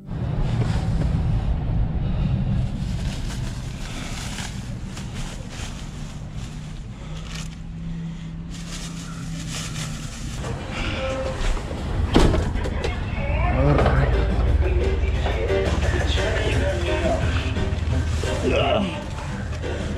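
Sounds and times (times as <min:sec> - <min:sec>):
wind noise: 0:00.0 - 0:06.8
low steady rumble: 0:00.0 - 0:19.9.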